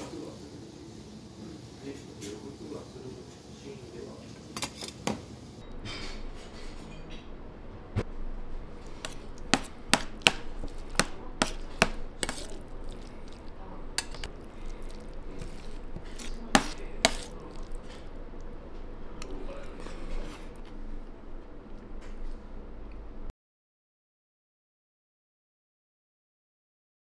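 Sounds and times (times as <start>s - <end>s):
metal spoon clinking on plate: 11.4s - 18.0s.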